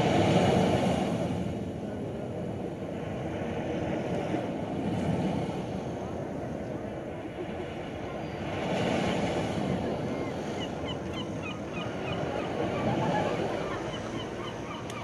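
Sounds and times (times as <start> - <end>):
crowd murmur: 5.9 - 15.0.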